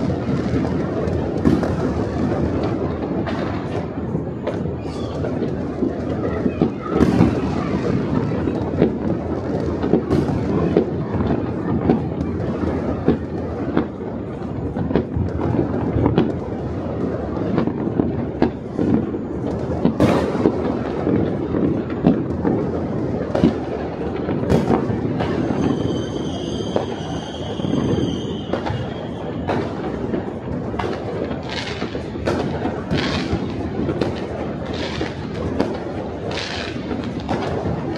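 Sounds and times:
fireworks crackling and banging: 0.0 - 37.9
steady high whistle: 25.4 - 29.4.

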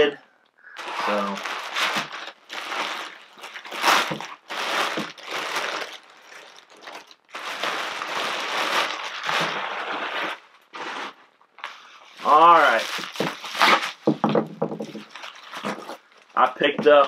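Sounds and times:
plastic packaging crinkling: 0.6 - 17.0.

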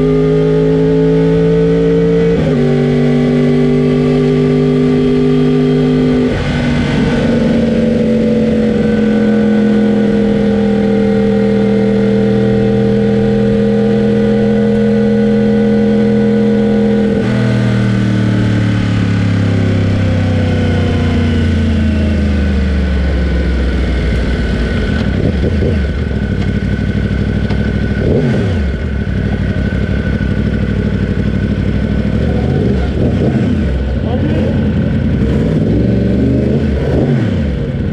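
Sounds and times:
motorcycle engine running: 0.0 - 37.9.

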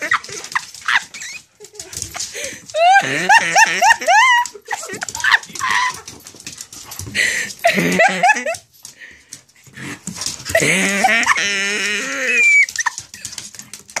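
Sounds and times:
dogs play-growling: 9.6 - 14.0
dog high whine: 10.5 - 13.0.

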